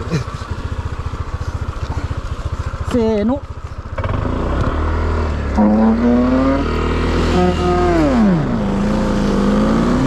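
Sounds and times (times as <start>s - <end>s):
scooter engine revving hard: 4.0s - 10.0s.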